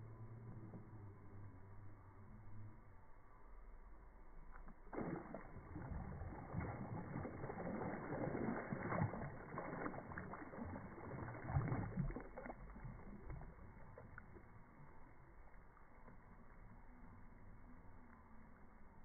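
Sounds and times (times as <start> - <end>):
fish thrashing and splashing: 4.9 - 14.3.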